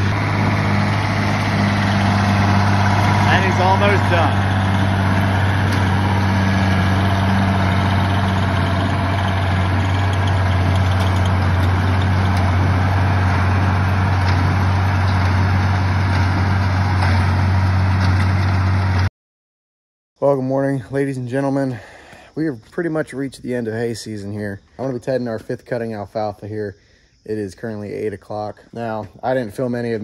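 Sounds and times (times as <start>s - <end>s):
tractor engine humming: 0.0s - 19.1s.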